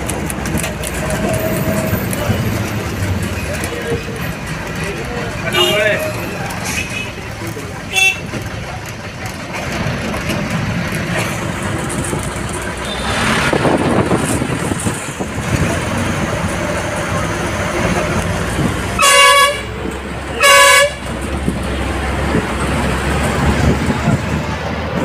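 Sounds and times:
bus engine and road noise: 0.0 - 25.0
bus horn blasts: 5.5 - 7.2, 7.9 - 8.4, 18.9 - 21.2.

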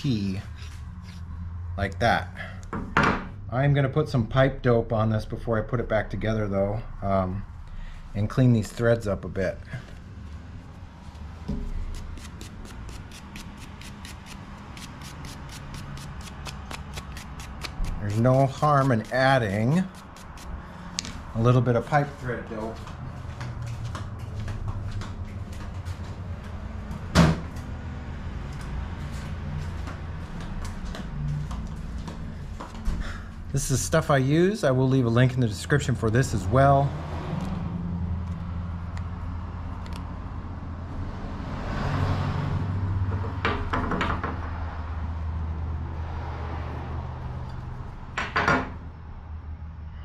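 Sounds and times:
footsteps in flip-flops: 21.8 - 27.7, 28.4 - 33.0.

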